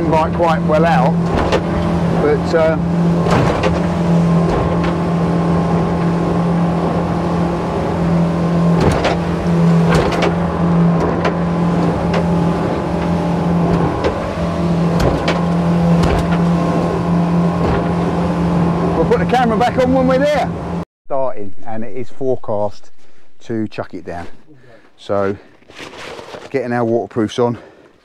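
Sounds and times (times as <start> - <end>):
boat engine droning: 0.0 - 26.4
sharp knocks: 3.1 - 5.1, 8.7 - 16.6.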